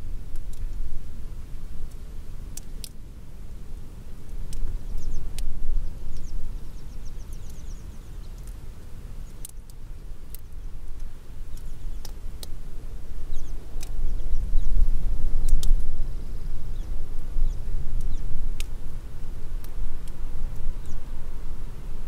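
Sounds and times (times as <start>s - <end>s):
raindrop ticks: 0.3s - 0.8s, 2.6s - 3.0s, 4.3s - 5.5s, 7.3s - 7.6s, 8.4s - 12.6s, 13.4s - 14.0s, 15.4s - 15.9s, 18.0s - 18.8s, 19.6s - 21.0s
wind buffeting microphone: 4.4s - 8.5s, 10.6s - 22.0s.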